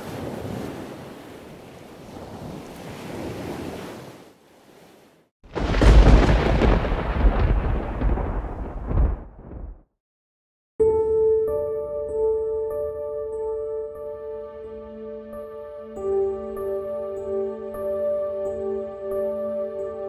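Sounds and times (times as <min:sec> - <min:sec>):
wind: 0:00.0 - 0:09.7
loud rumbling crash: 0:05.6 - 0:09.9.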